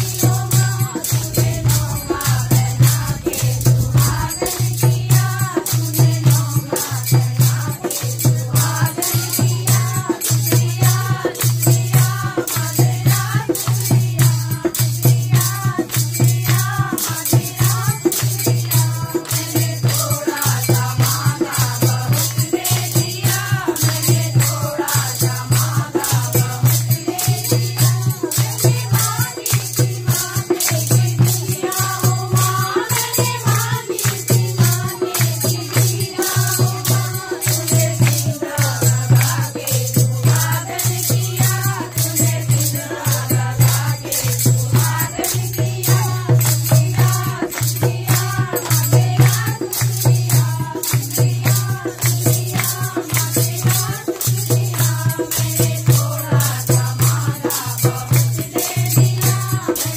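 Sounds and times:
steady beat: 0.0 - 5.6
jingling percussion: 0.0 - 59.9
voices singing: 0.0 - 59.9.

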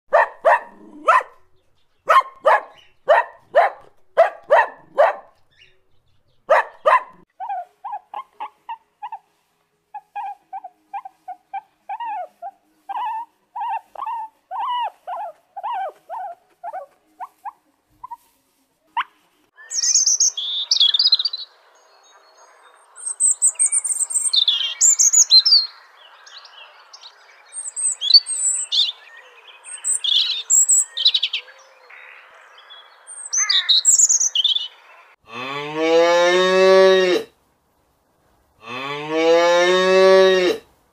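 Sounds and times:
puppy yipping: 0.1 - 1.4, 2.1 - 5.3, 6.5 - 9.3, 9.9 - 18.3
birds chirping: 0.1 - 7.2, 19.6 - 35.2.

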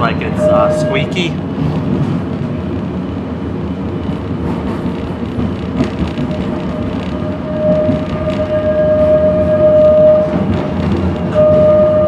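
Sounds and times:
steady high tone: 0.0 - 1.4, 7.4 - 10.4
streetcar rolling rumble: 0.0 - 12.0.

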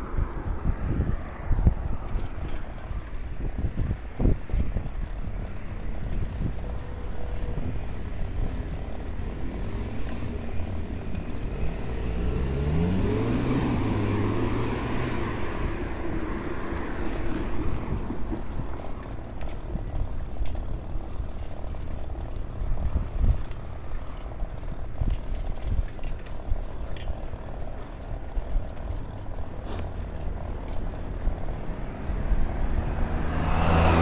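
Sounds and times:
road traffic noise: 0.0 - 34.0
wind rumble on microphone: 0.0 - 34.0
car passing by: 9.0 - 19.5, 29.6 - 34.0.

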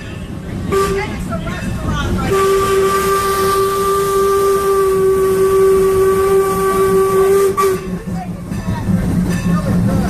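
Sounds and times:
moving train rumble: 0.0 - 10.0
steam locomotive whistle: 0.7 - 1.1, 2.3 - 8.1.

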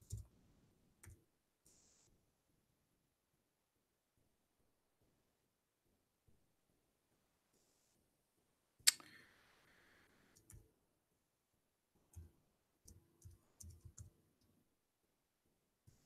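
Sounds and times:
keyboard and mouse clicks: 12.1 - 14.2.

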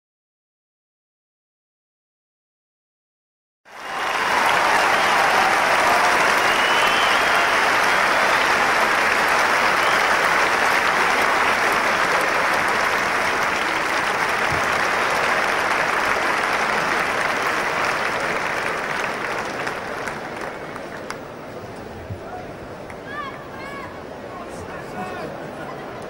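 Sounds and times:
crowd applauding: 3.7 - 21.6.

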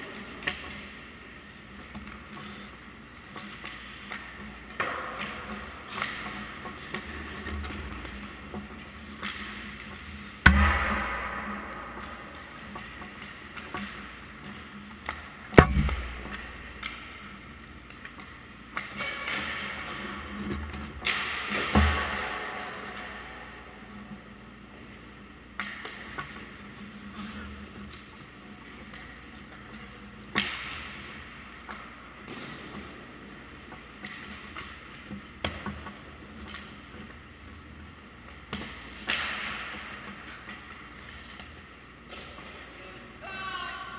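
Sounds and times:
clicks of sticks and pucks: 0.0 - 43.0
hockey puck impact crack: 1.9 - 24.1, 28.8 - 36.7, 38.3 - 42.5
hockey stick cracking puck: 3.4 - 7.1, 9.2 - 14.0, 15.0 - 17.1, 38.5 - 40.7
steady low hum: 4.2 - 18.7.

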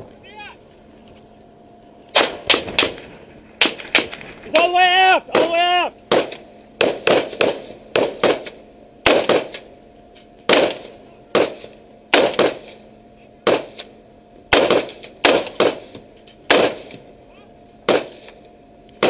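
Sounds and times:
faint steady hum: 0.0 - 19.0
rifle shots: 2.1 - 4.7, 5.3 - 9.7, 10.4 - 12.8, 13.4 - 17.0, 17.8 - 18.4.

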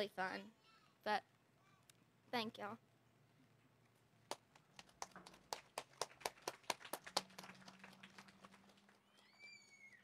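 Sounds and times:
people clapping: 4.3 - 10.0.

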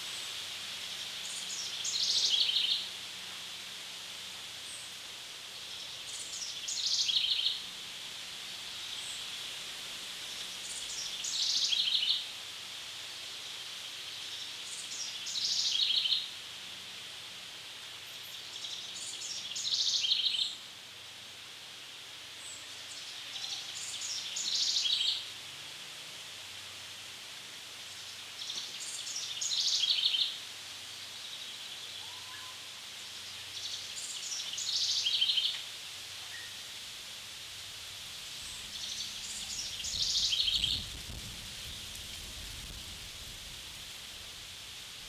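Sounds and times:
faint high hiss: 0.0 - 45.0
songbird singing trilling phrase: 38.4 - 40.9.

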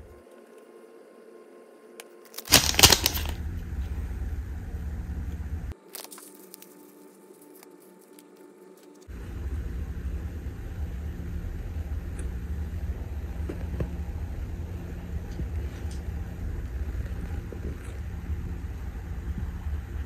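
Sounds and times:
steady low rumble: 2.5 - 5.8, 9.1 - 20.0.

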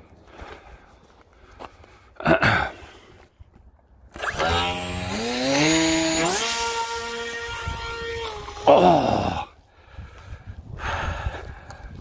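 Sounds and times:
motor whine climbing in pitch: 4.1 - 9.0.

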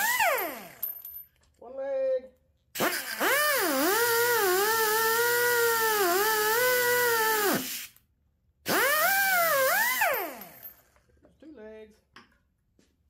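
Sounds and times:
pneumatic cut-off tool cutting steel: 2.8 - 8.0, 8.7 - 10.6.

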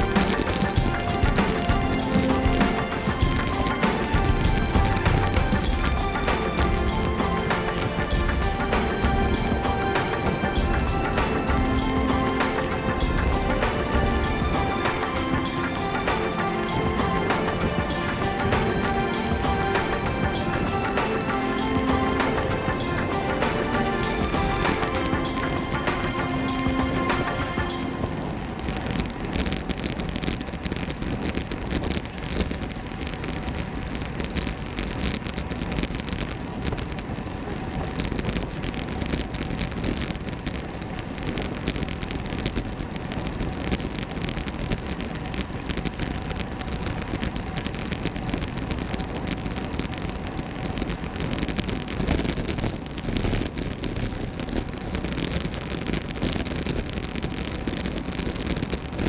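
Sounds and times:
road and tyre rumble: 27.9 - 59.0.

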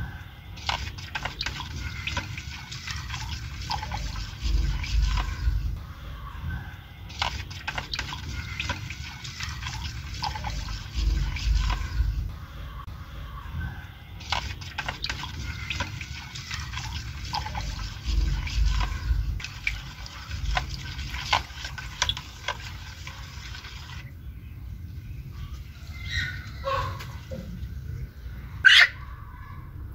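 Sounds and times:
water stirred and splashed in bowl: 0.5 - 5.8, 7.1 - 12.3, 14.2 - 24.1
small clicks and drips: 0.6 - 5.4, 7.1 - 12.0, 14.2 - 24.1.

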